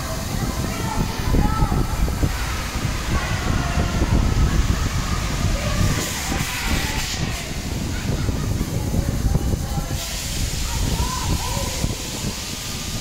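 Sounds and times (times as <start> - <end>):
fairground noise: 0.0 - 13.0
fairground ride running: 0.0 - 13.0
wind rumbling on microphone: 0.0 - 13.0
brief hiss: 9.9 - 13.0.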